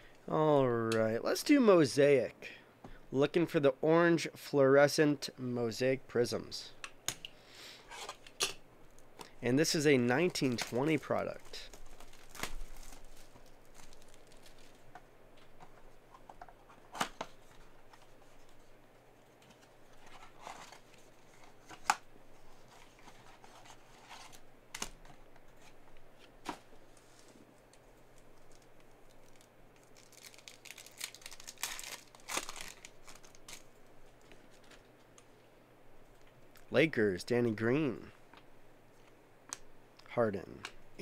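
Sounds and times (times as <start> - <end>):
plastic wrapper crinkling and tearing: 10.3 - 15.0, 28.1 - 35.0.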